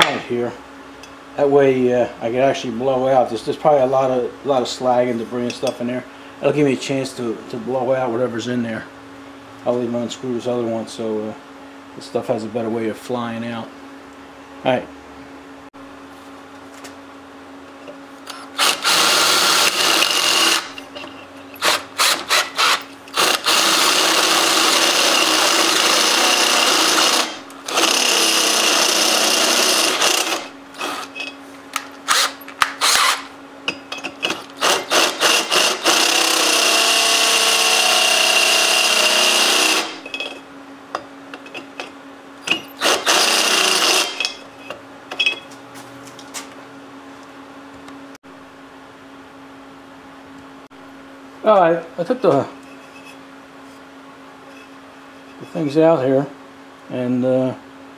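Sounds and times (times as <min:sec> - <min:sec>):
drill boring through metal: 0:18.3 - 0:20.8, 0:21.6 - 0:31.2, 0:32.1 - 0:33.3, 0:34.6 - 0:40.0, 0:42.5 - 0:44.4.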